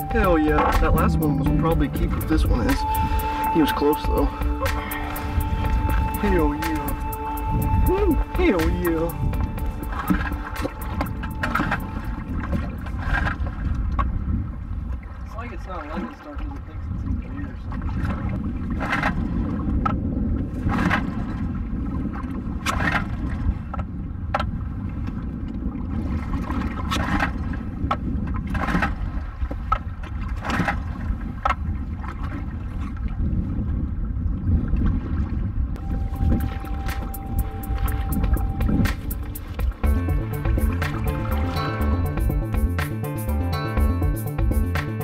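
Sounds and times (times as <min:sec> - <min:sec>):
music: 0:00.0 - 0:13.0, 0:35.8 - 0:45.0
wind and water rumble: 0:00.0 - 0:45.0.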